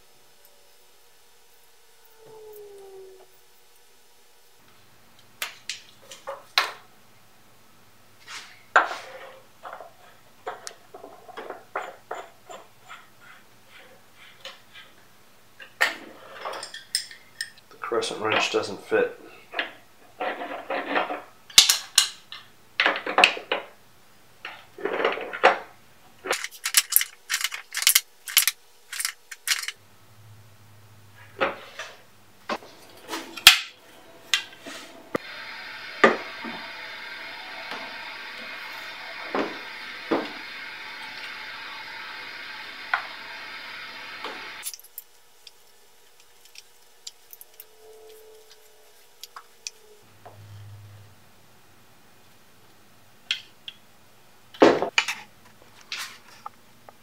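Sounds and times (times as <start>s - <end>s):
wrench and metal fittings clinking: 26.3s - 29.8s, 44.6s - 45.6s
steady hiss: 31.2s - 50.2s.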